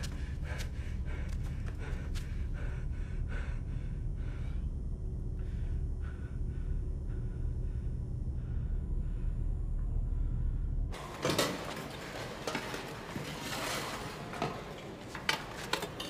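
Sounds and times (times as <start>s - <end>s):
low rumble: 0.0s - 11.0s
man breathing hard: 0.0s - 11.0s.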